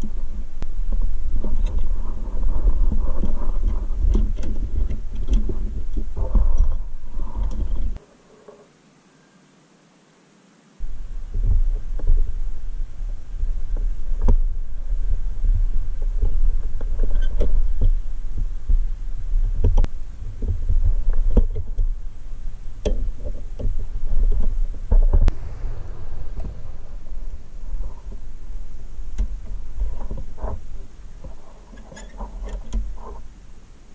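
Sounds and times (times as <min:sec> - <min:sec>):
steady low rumble: 0:10.8 - 0:16.2, 0:24.8 - 0:31.3.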